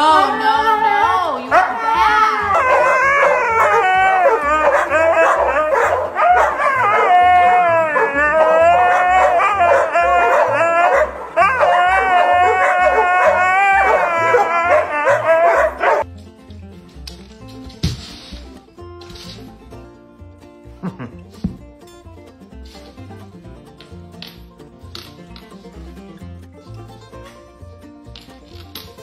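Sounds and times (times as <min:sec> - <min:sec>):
dog howling and whining: 0:01.5 - 0:16.0.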